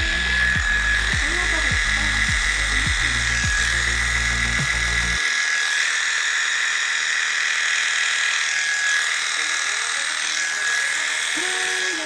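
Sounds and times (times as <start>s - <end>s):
electric hair clipper buzzing: 0.0s - 12.0s.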